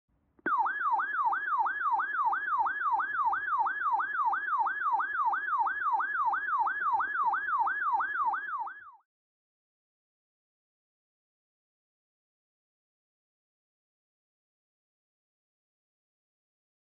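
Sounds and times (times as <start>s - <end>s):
weather radio warbling alert siren: 0.5s - 9.0s.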